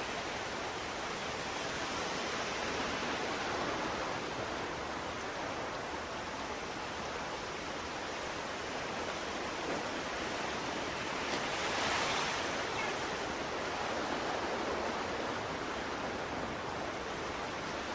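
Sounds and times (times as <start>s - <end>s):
small waves washing onto beach: 0.0s - 17.9s.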